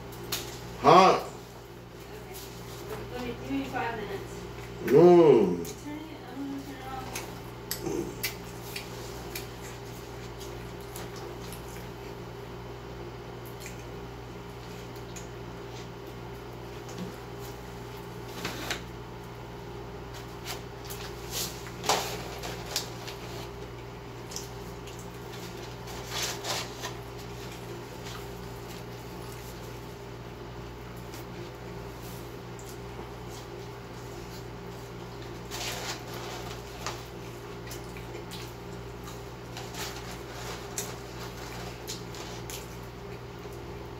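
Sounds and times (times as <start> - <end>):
low room hum: 0.0 - 43.9
mouth noises of eating: 4.4 - 5.9, 6.6 - 12.6.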